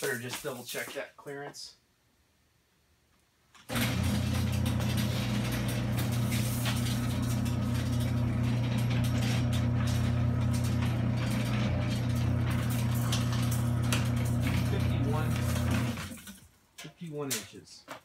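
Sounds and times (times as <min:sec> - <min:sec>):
door rollers clicking and rattling: 0:03.7 - 0:16.4
garage door opener motor running: 0:03.7 - 0:16.4.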